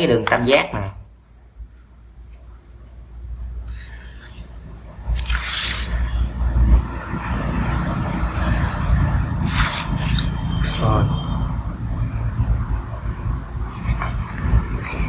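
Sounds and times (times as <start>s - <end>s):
marker pen drawing on paper: 3.7s - 4.6s, 8.4s - 11.4s
steady low rumble: 6.0s - 15.0s.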